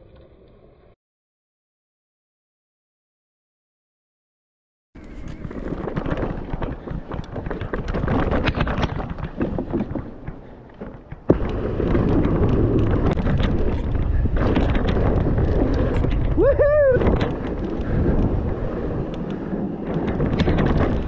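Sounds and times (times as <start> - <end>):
bike rattles and clicks: 5.0 - 21.0
wind rushing over microphone: 5.0 - 21.0.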